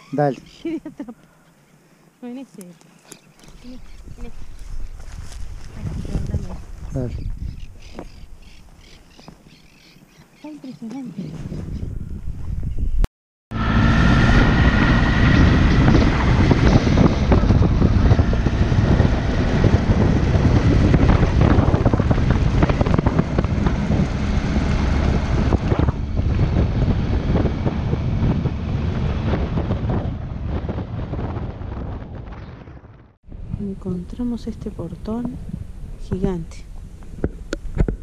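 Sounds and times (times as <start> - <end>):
wind buffeting microphone: 3.3 - 38.0
motorcycle engine running: 13.5 - 36.4.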